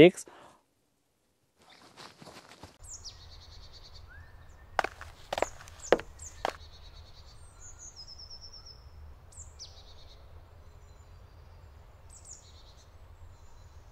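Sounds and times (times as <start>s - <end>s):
footstep on gravel: 4.8s - 6.6s.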